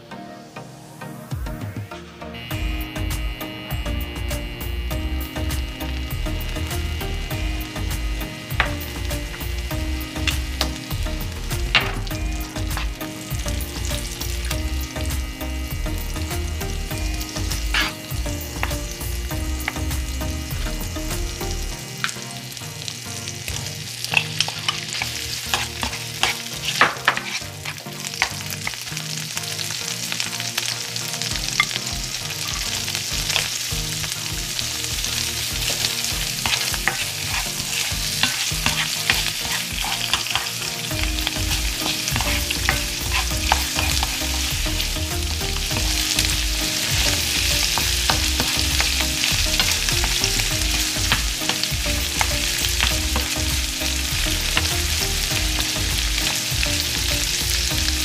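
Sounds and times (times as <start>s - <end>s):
shrimp sizzling in a pan: 2.4s - 58.0s
wooden spoon knocking on pan: 8.6s - 8.8s, 38.2s - 44.8s, 45.5s - 56.4s.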